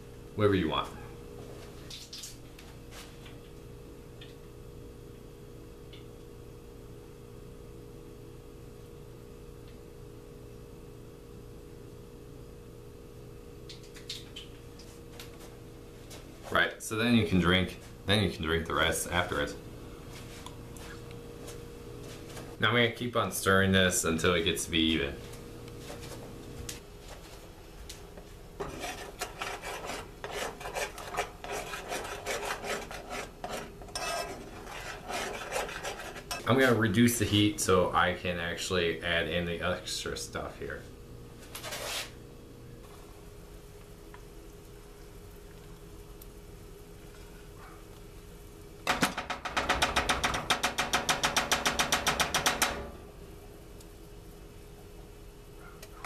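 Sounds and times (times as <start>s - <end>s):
metal utensil scraping saucepan: 28.6s - 36.6s.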